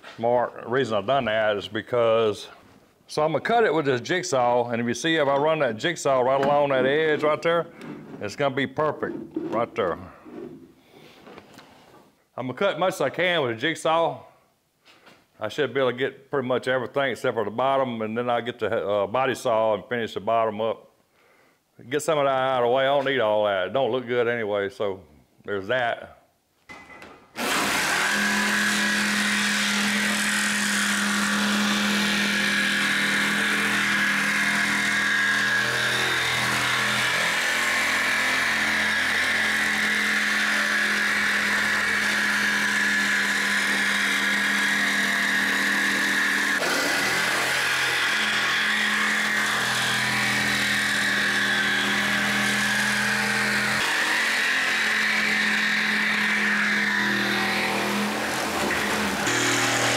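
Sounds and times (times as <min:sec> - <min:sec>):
jigsaw cutting fiberglass: 0:27.4 - 0:59.9.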